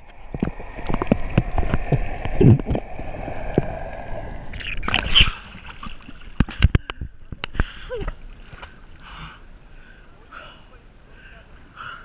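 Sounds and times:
bubbling gurgle: 0.0 - 6.4
underwater clicks and crackles: 0.0 - 9.1
steady underwater hum: 0.0 - 12.0.

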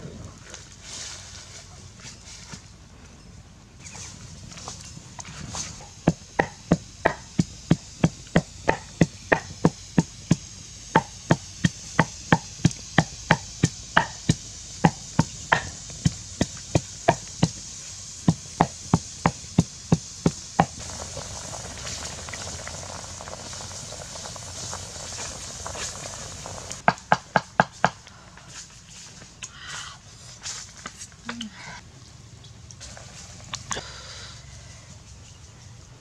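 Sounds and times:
pot boiling: 4.0 - 28.0, 32.7 - 33.9
pestle pounding in mortar: 5.8 - 17.6, 18.2 - 20.8, 26.8 - 28.0.

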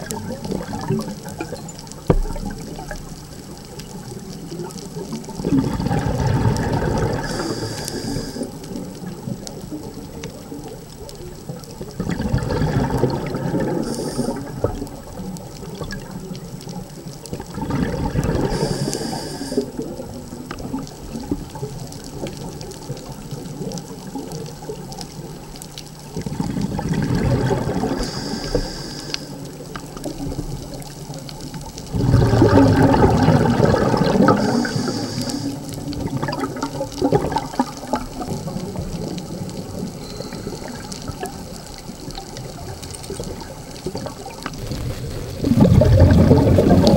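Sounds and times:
underwater exhaled bubbles: 0.0 - 46.9
regulator hiss: 7.0 - 8.9, 13.7 - 14.8, 18.4 - 20.0, 28.0 - 29.6, 34.2 - 36.0.

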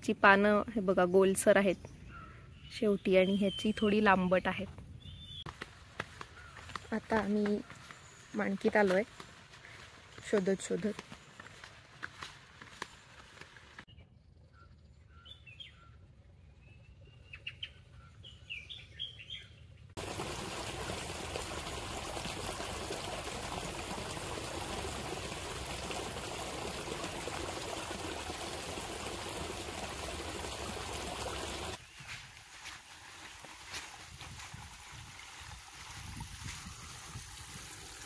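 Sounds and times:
birds chirping: 1.0 - 20.3
running water rushing: 20.0 - 31.8, 32.4 - 38.0.

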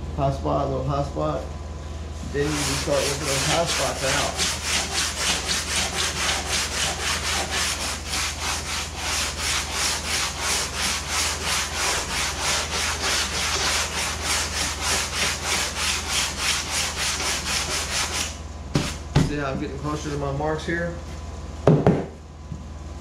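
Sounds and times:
sandpaper rubbing on foam: 2.4 - 19.0.

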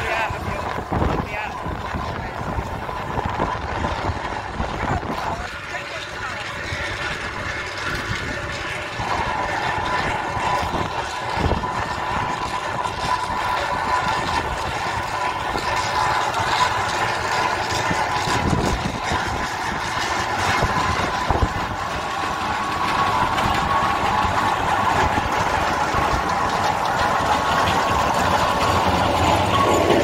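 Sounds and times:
steam engine running: 0.0 - 30.0
steady high tone: 18.2 - 30.0.

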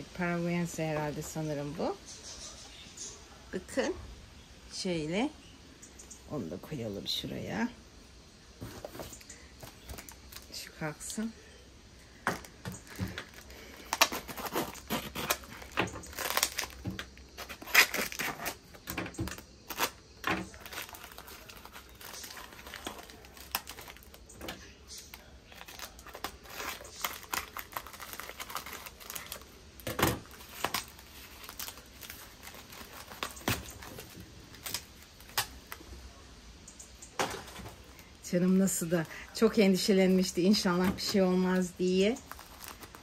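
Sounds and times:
packing wrap crinkling and tearing: 8.7 - 11.0, 12.2 - 35.9, 37.3 - 43.0.

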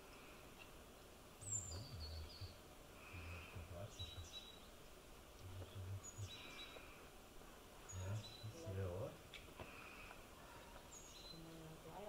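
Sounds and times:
small bird chirping: 1.4 - 4.8, 5.4 - 7.0, 7.8 - 9.0, 10.5 - 12.0.

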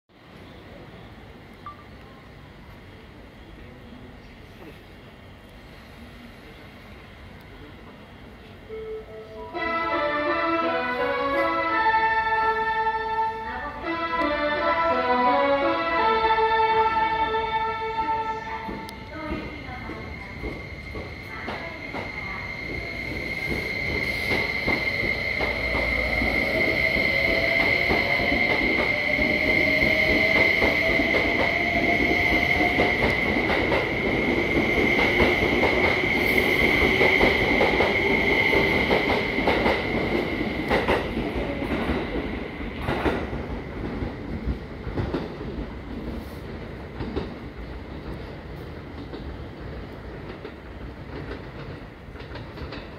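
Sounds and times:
electric train accelerating: 8.7 - 52.9.

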